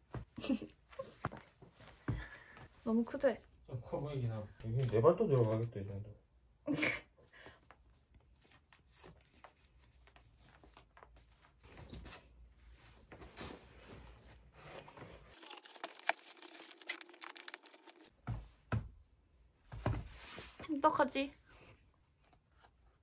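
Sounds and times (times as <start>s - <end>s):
laces being pulled: 15.4s - 18.1s.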